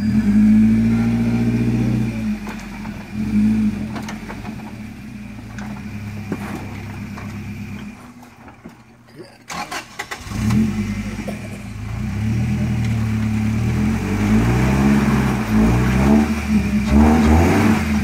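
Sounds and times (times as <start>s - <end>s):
truck engine revving: 0.0s - 18.0s
tyres knocking on rocks: 5.4s - 9.1s.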